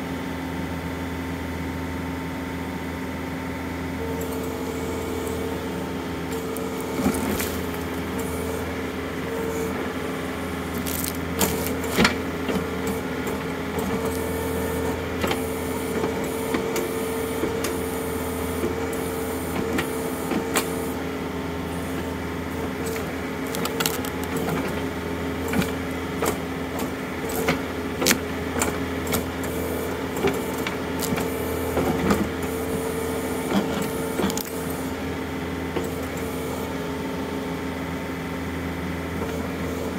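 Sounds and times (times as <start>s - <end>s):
tractor diesel engine running: 0.0s - 39.9s
roots and wood cracking: 6.4s - 8.3s, 10.6s - 12.2s, 22.9s - 24.8s, 30.3s - 31.3s, 34.3s - 34.6s.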